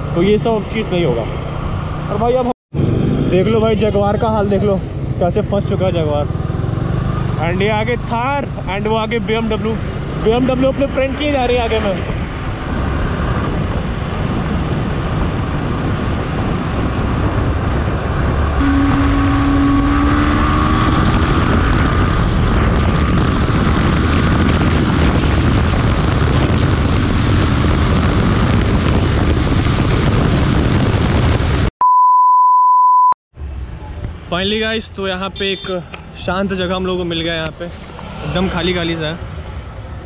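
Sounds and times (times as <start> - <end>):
wind and road noise: 0.0 - 31.7, 33.3 - 40.0
motorcycle engine: 1.3 - 11.0, 14.6 - 31.6
high-pitched test-tone beep: 31.8 - 33.2.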